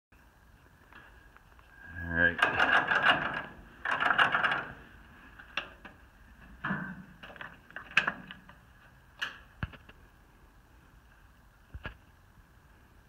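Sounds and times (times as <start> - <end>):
clicks and knocks of tractor controls: 2.4 - 4.8, 6.6 - 8.6.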